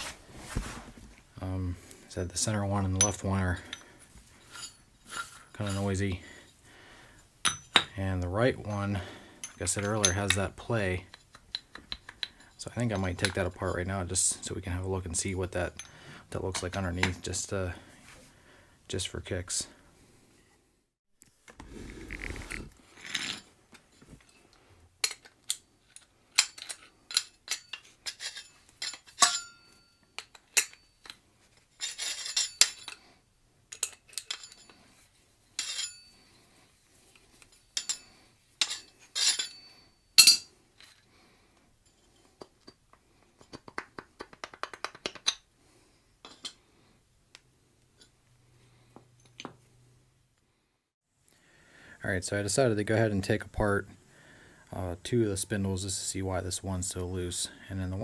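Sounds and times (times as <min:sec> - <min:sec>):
metal clinks knocks and scrapes: 0:02.3 - 0:06.5, 0:07.4 - 0:08.0, 0:08.6 - 0:13.8, 0:22.9 - 0:41.1, 0:41.8 - 0:43.8, 0:46.2 - 0:46.6.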